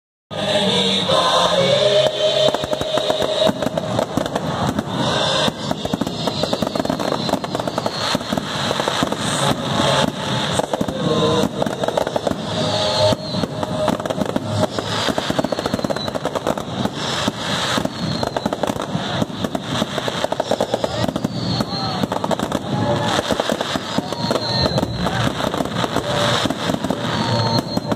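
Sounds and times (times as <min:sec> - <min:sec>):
fireworks bangs and crackling: 0:00.3 - 0:27.9.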